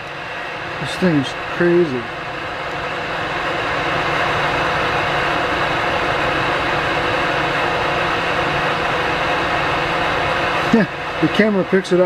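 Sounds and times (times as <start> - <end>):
server cooling fans whooshing hum: 0.0 - 12.0.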